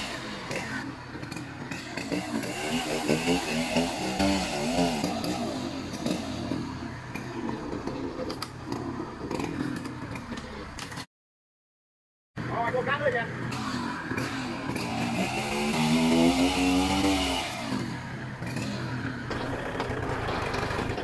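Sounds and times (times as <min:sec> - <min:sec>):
chainsaw cutting wood: 0:00.0 - 0:07.2, 0:13.5 - 0:21.0.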